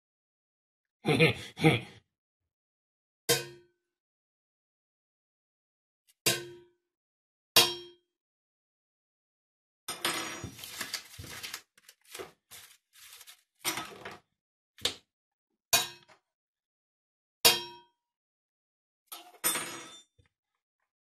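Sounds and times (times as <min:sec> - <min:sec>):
items rustling and clicking: 0:10.2 - 0:14.2.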